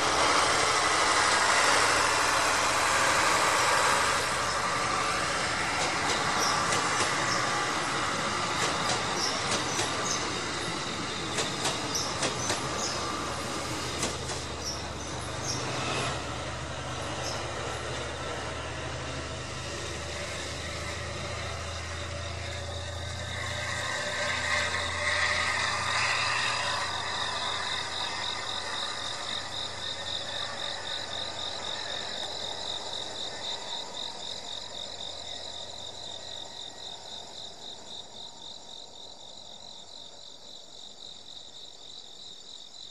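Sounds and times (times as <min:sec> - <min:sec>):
insects chirping: 0:00.0 - 0:42.9
train passing with low hum: 0:00.0 - 0:42.9.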